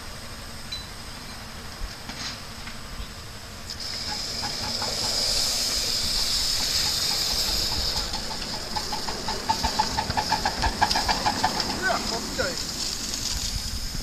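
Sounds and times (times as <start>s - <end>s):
steam locomotive hissing: 0.0s - 14.0s
steam locomotive chuffing: 3.4s - 14.0s.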